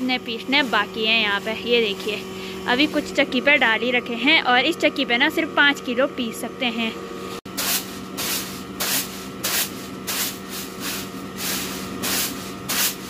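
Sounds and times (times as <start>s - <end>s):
grain rattling in winnowing tray: 7.5s - 13.0s.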